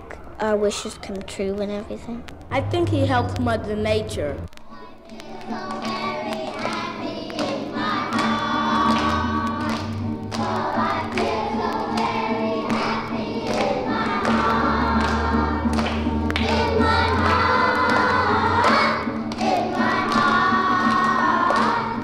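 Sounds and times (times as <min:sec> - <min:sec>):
choir singing: 0:04.8 - 0:22.0.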